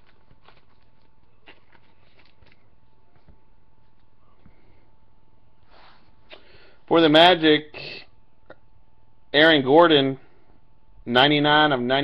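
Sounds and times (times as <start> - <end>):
trading cards rustling: 0.0 - 4.2
faint steady whine: 0.0 - 12.0.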